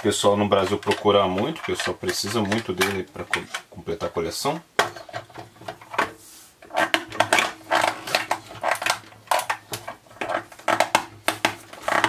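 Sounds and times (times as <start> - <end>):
plastic toy clicking and rattling: 0.5 - 3.7, 6.7 - 12.0.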